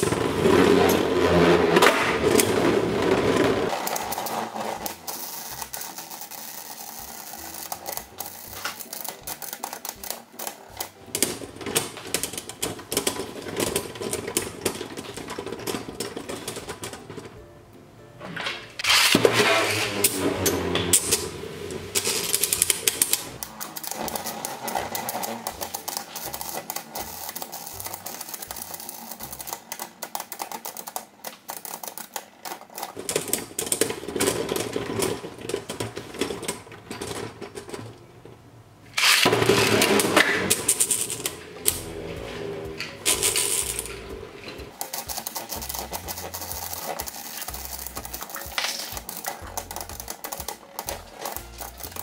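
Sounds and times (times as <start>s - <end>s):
spinning tops clicking and rattling: 0.0s - 17.4s, 18.8s - 37.3s, 39.0s - 52.0s.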